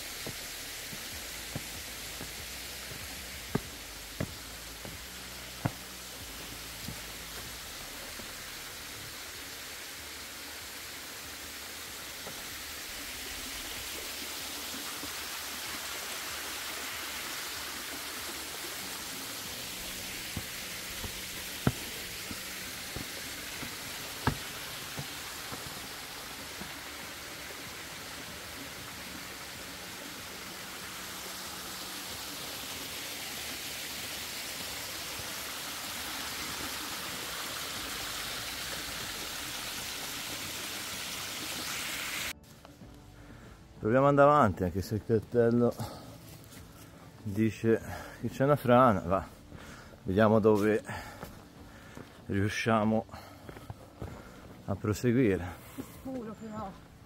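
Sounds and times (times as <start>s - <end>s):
water rushing: 0.0s - 42.4s.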